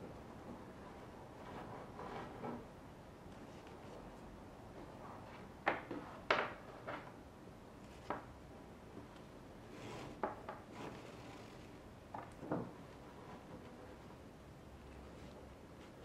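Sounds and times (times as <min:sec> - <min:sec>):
cord rubbing: 0:09.7 - 0:16.0.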